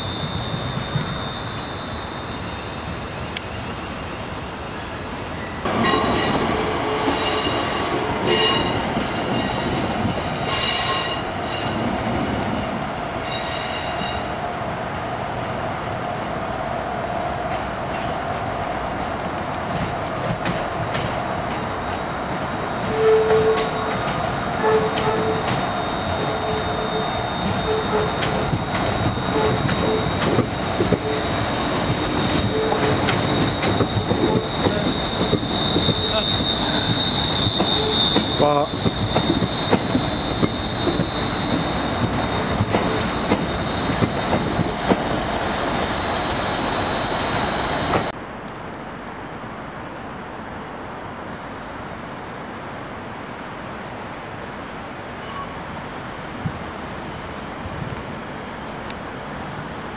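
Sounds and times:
train wheels squealing: 0.0 - 14.5, 21.5 - 48.1, 52.8 - 57.6
train rumble: 0.0 - 53.0.

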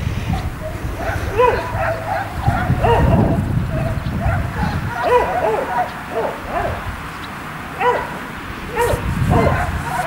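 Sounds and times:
dog whining yips: 0.4 - 6.8, 8.8 - 10.0.

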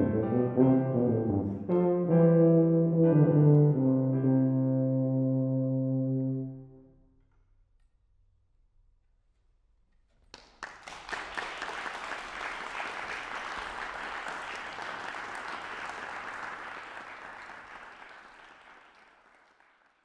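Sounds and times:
audience applauding: 10.3 - 20.0.

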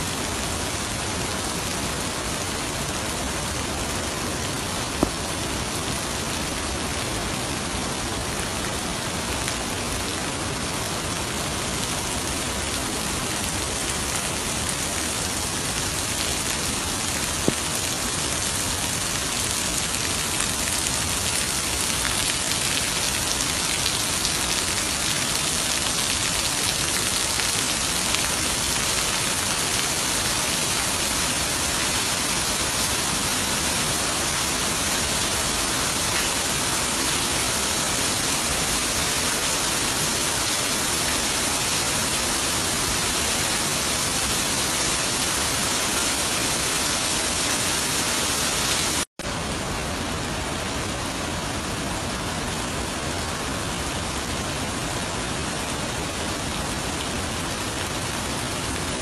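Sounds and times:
heavy rain: 0.0 - 59.0
rainwater splashing off roof: 0.0 - 59.0.

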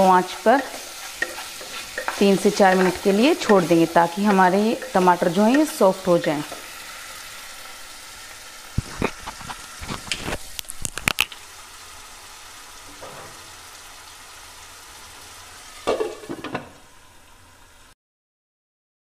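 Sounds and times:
wooden spatula scraping a pan: 0.0 - 6.7, 8.8 - 10.5
vegetables sizzling in a pan: 0.0 - 18.0
glass lid clattering onto pan: 15.9 - 16.7.

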